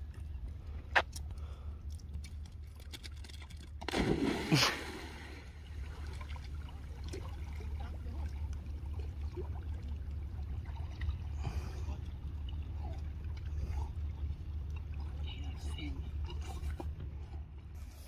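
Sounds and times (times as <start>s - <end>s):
water sloshing: 0.0s - 18.0s
dog splashing into water: 3.9s - 5.4s.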